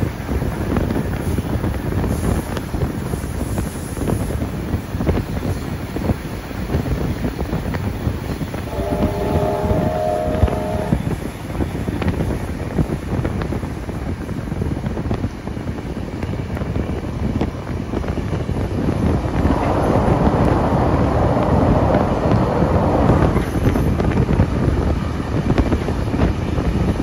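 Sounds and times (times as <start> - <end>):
train rumble and clatter: 0.0 - 27.0
wind buffeting microphone: 0.0 - 27.0
steam train whistle chord: 8.7 - 11.1.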